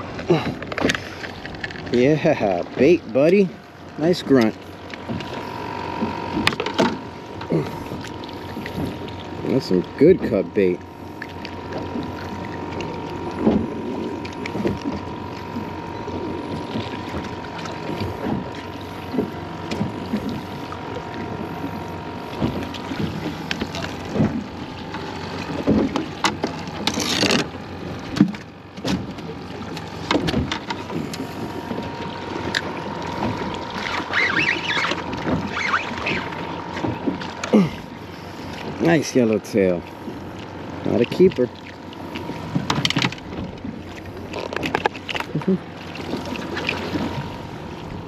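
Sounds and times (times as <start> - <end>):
water slapping against boat hull: 0.0 - 48.0
knocks and thumps of gear: 30.0 - 34.1, 42.5 - 43.7, 44.3 - 45.5.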